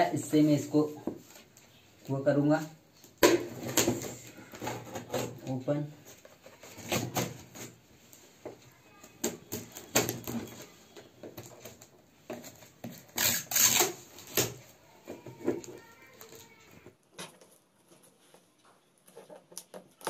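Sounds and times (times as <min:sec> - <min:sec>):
knife slitting packing tape: 0:12.9 - 0:14.6.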